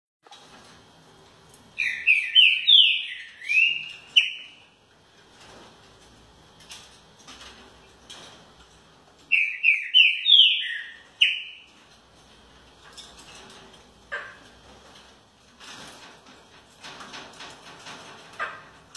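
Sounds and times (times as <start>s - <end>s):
bird singing whistled phrases: 1.8s - 4.6s, 9.3s - 11.6s.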